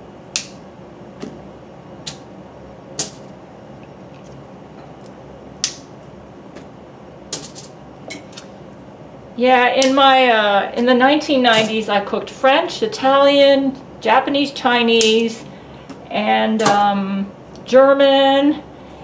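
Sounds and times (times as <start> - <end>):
asparagus spears snapping: 0.3 - 0.6, 2.0 - 2.3, 5.6 - 5.9.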